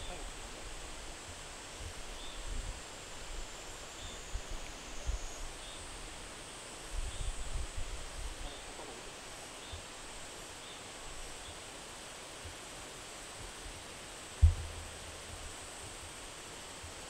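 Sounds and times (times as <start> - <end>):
background hiss: 0.0 - 17.0
sharp low thump: 14.4 - 14.9
low rumbling bumps: 14.4 - 15.0.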